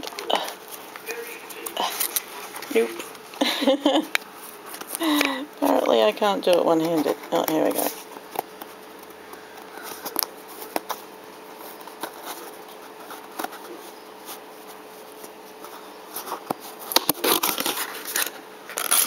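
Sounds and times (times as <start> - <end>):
scissors cutting packing tape: 16.8 - 19.0.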